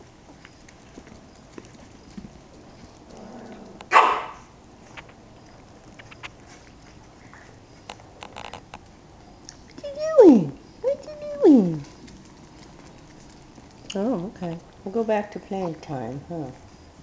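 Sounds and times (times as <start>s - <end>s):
puppy bark: 3.9s - 4.5s
puppy claws clicking on floor: 4.8s - 10.0s, 10.9s - 14.8s.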